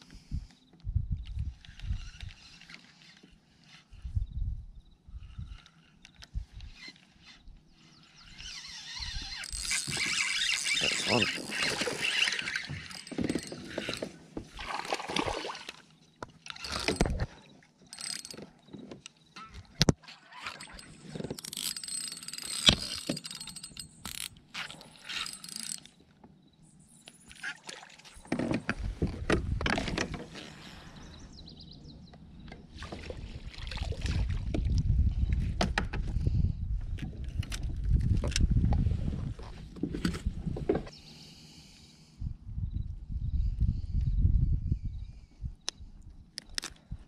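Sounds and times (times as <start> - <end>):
fishing reel whirring and clicking: 5.4 - 14.1, 16.5 - 17.3, 17.9 - 18.5, 20.4 - 26.0.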